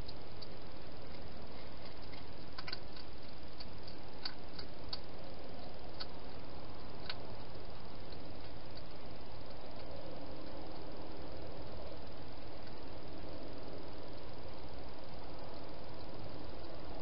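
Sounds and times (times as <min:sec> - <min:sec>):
hedgehog crunching food: 0:00.0 - 0:10.9
steady hiss: 0:00.0 - 0:17.0.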